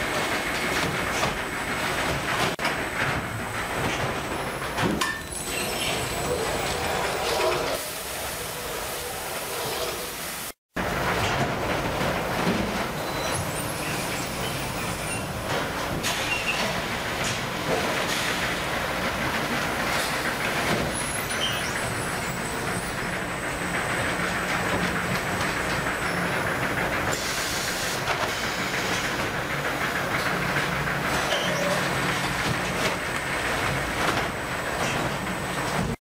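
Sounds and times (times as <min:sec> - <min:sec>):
machinery rattle and hum: 0:00.0 - 0:07.7, 0:10.8 - 0:36.0
hiss: 0:07.8 - 0:10.6, 0:27.1 - 0:29.2.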